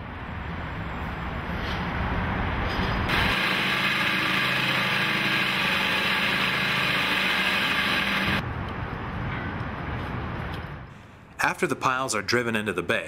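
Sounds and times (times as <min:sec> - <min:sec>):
machinery engine drone: 0:02.8 - 0:08.4.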